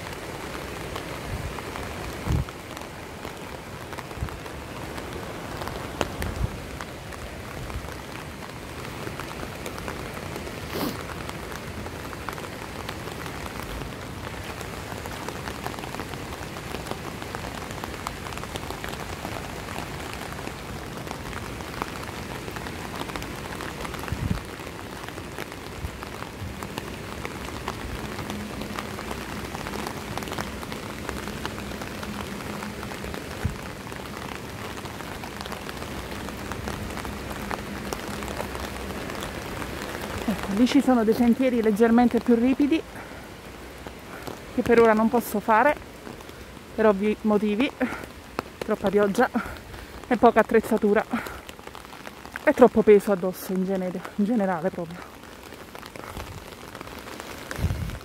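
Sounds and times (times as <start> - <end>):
rain pattering on an umbrella: 0.0 - 58.0.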